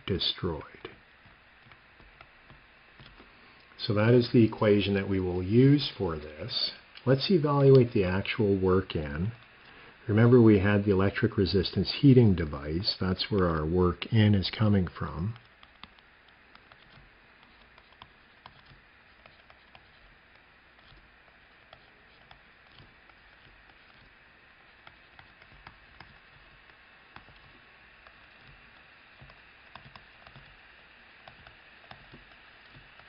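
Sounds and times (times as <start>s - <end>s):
low hiss: 0.0s - 33.0s
stylus tapping on screen: 15.3s - 21.1s, 21.7s - 30.6s.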